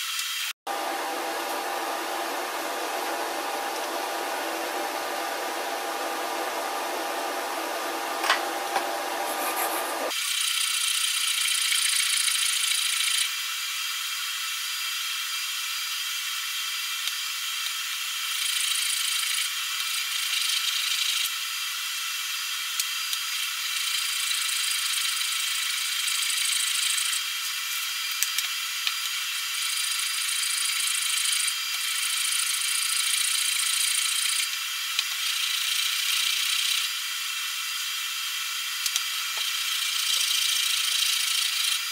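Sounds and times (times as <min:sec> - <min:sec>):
steady mechanical hum: 0:00.7 - 0:10.2
plane iron scraping on sandpaper: 0:08.2 - 0:10.1.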